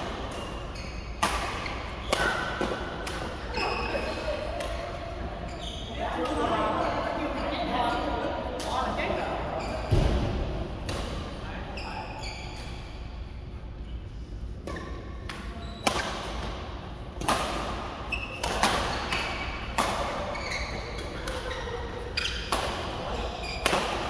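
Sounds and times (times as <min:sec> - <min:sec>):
rackets hitting shuttlecock: 0:00.0 - 0:03.6, 0:14.6 - 0:24.0
shoes squeaking on court: 0:00.2 - 0:07.8, 0:09.5 - 0:10.0, 0:11.8 - 0:13.2, 0:18.0 - 0:24.0.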